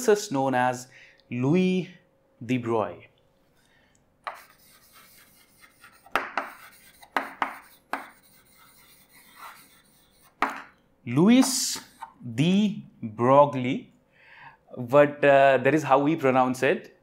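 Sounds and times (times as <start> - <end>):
chalk scratching on chalkboard: 4.2 - 10.8, 11.4 - 12.2
chalk tapping on board: 4.2 - 10.8, 11.4 - 12.2.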